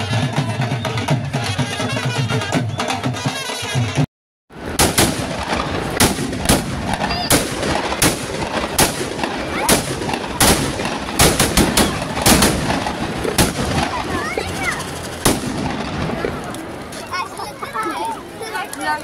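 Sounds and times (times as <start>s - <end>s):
fire crackling: 4.6s - 19.0s
firecrackers banging: 4.6s - 19.0s.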